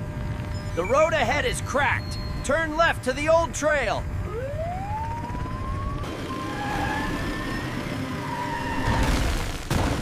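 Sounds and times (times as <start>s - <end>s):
siren wailing: 4.0s - 9.2s.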